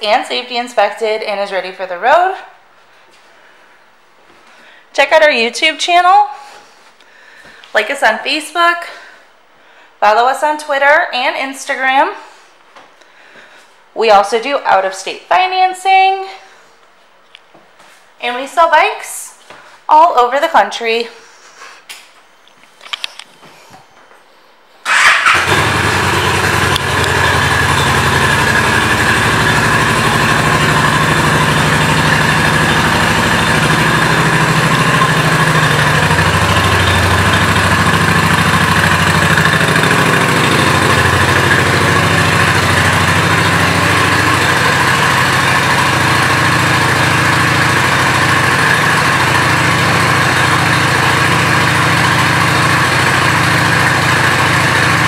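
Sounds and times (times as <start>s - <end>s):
motorcycle engine idling: 24.9s - 55.0s.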